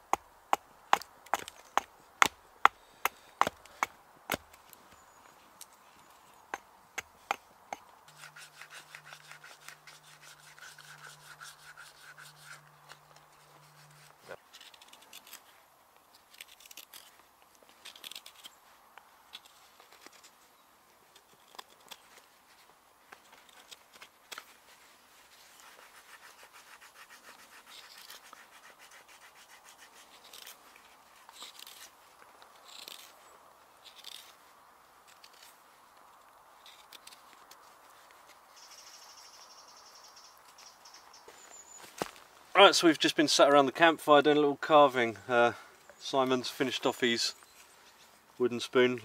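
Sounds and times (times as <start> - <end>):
knife scraping wood: 6.5 - 15.5, 25.3 - 32.0, 32.6 - 33.2, 33.8 - 34.4, 35.1 - 35.6, 36.6 - 38.4
knife whittling wood: 8.1 - 12.6.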